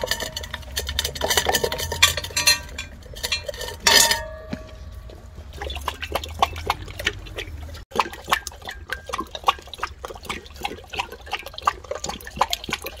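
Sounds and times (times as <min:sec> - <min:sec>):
dog lapping water: 0:04.7 - 0:13.0.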